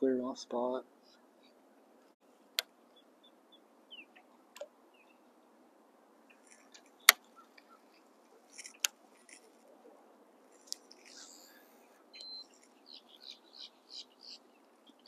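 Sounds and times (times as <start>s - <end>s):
faint rustling: 6.2s - 12.9s.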